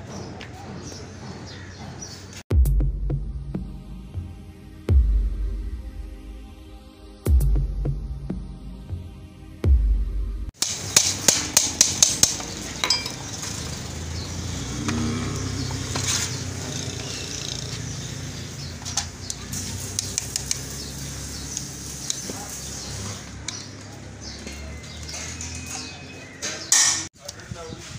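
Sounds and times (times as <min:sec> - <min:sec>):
metal tools knocking on wheel hub: 0:10.6 - 0:13.8, 0:23.4 - 0:27.1.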